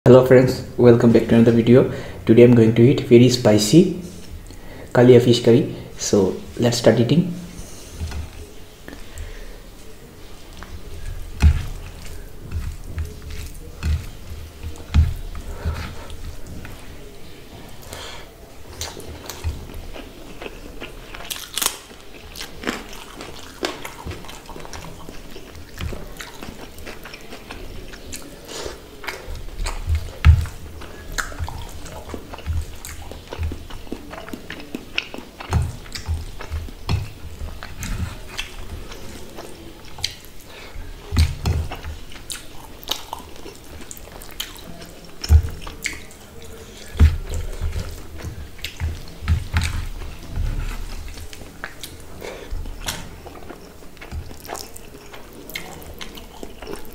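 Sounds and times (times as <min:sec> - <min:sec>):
chewing and mouth clicks: 0:07.6 - 0:56.9.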